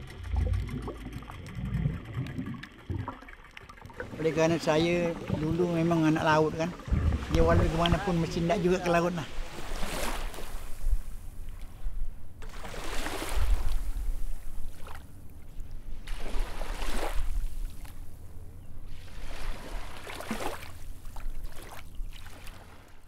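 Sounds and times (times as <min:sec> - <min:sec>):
low rumble: 0:00.0 - 0:09.0
sea waves washing in: 0:00.0 - 0:23.0.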